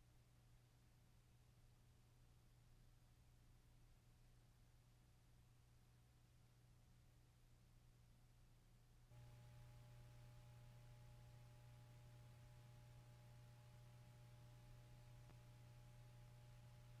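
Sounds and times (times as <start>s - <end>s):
faint low hum: 0.0s - 17.0s
light hiss: 9.2s - 17.0s.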